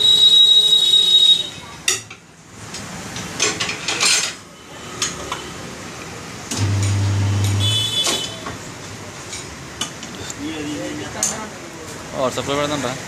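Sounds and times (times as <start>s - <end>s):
metal tools clanking on wheel rim: 3.2s - 5.5s.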